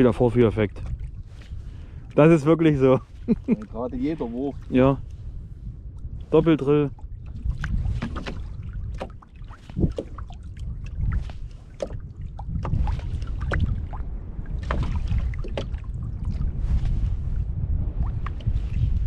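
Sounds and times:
wind rumbling on microphone: 0.0 - 19.0
short water splashes: 6.2 - 19.0.

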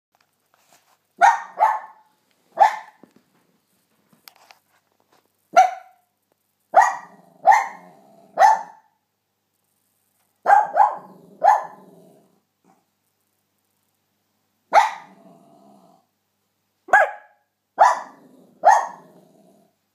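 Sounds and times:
dog barking: 1.2 - 3.0, 5.5 - 6.1, 6.7 - 9.0, 10.4 - 11.9, 14.7 - 15.3, 16.9 - 19.2.

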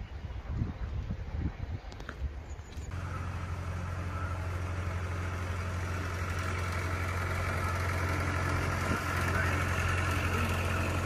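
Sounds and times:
wind rumble on microphone: 0.0 - 3.0
tractor engine running: 2.9 - 11.0.

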